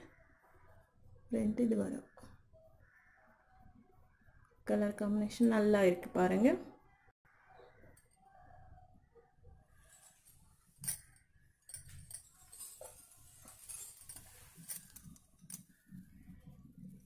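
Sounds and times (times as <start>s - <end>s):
light clicks and clinks: 9.8s - 17.0s
wool pouch rustling: 11.9s - 16.0s.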